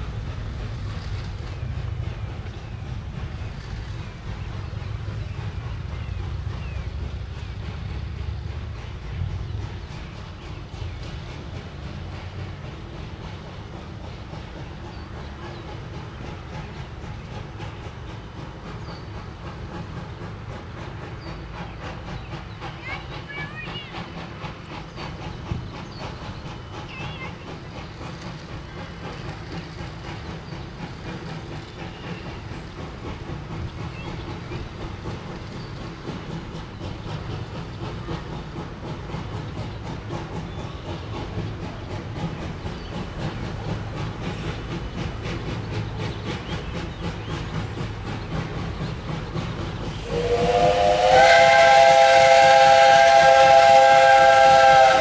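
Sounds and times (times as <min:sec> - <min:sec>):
steam locomotive exhaust chuffs: 0:00.0 - 0:55.0
steam whistle blast: 0:50.0 - 0:55.0.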